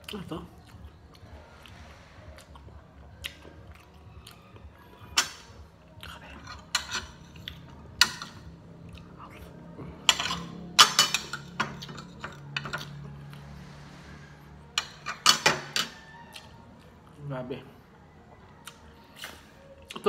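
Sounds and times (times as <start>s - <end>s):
cutlery clinking on a plate: 10.1s - 13.0s.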